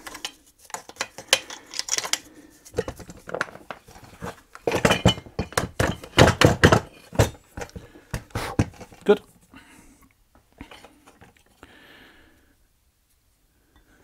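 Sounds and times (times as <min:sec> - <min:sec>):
plastic and metal parts clattering: 0:00.0 - 0:09.2, 0:10.6 - 0:11.5.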